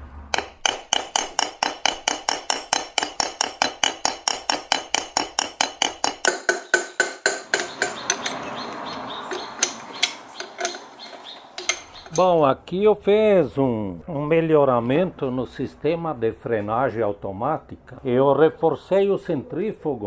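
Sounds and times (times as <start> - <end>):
hammer tapping metal cover: 0.4 - 12.3.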